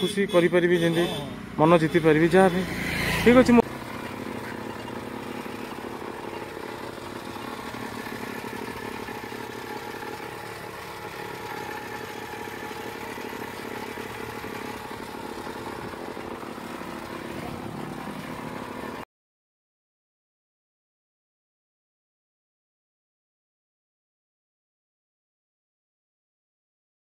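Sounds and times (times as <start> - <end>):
small engine humming: 0.9 - 19.0.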